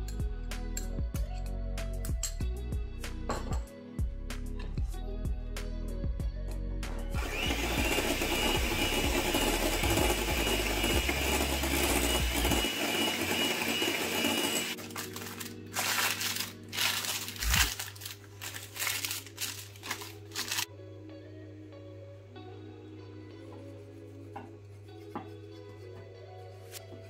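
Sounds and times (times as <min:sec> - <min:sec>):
hand mixer whisking cream: 0:07.2 - 0:17.7
baking parchment crinkling: 0:14.8 - 0:20.7.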